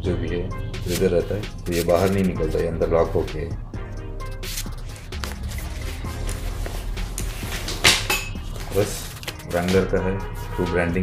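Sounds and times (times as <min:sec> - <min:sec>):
background music: 0:00.0 - 0:11.0
backpack fabric handling: 0:04.5 - 0:09.8
backpack scuffing on table: 0:05.2 - 0:09.4.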